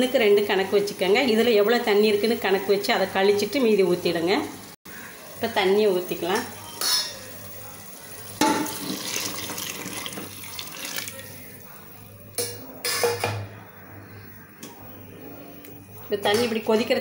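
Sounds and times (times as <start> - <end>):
water pouring into a pot: 8.5 - 11.6
sharp knocks against a pot: 12.4 - 13.5.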